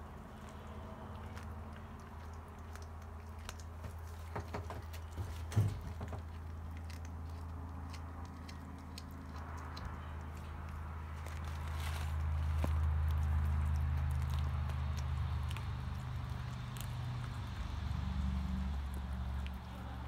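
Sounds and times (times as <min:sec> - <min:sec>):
cat chewing wet crunches: 0:00.0 - 0:05.4, 0:06.0 - 0:20.0.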